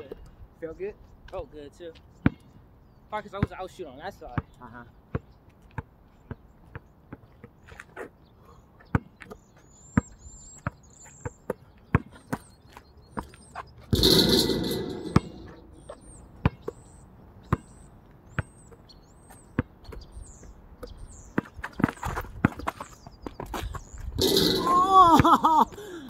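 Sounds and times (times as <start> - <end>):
birds chirping: 0.0 - 26.0
basketball bouncing on asphalt: 2.2 - 2.5, 5.1 - 7.8, 8.8 - 25.4
ball hitting backboard and rim: 13.9 - 16.7, 24.2 - 25.8.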